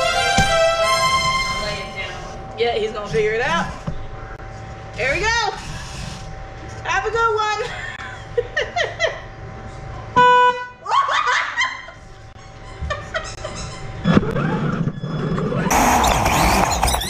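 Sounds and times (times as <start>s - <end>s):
people laughing: 7.6s - 9.4s, 10.8s - 14.0s
toy car horn beep: 10.2s - 10.7s.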